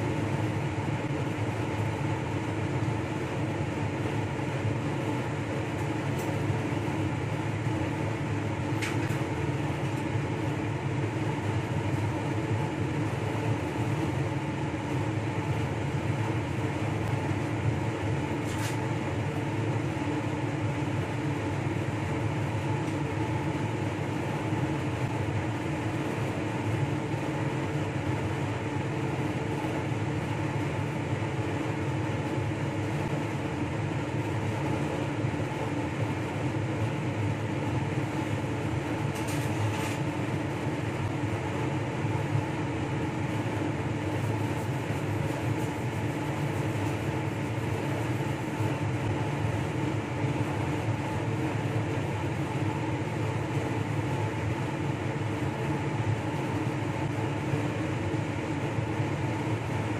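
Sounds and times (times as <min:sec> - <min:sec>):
fan droning hum: 0:00.0 - 0:59.9.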